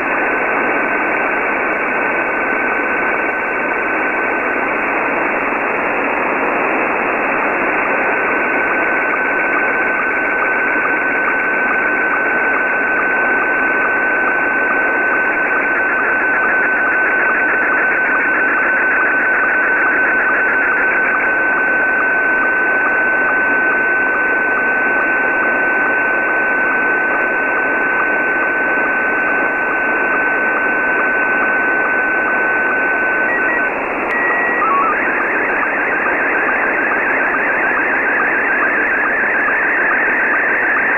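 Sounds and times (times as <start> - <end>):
radio static hiss: 0.0 - 40.9
steady signal tone: 0.0 - 40.9
rhythmic warble of scan lines: 6.9 - 40.9
beeps at different pitches: 31.4 - 40.9.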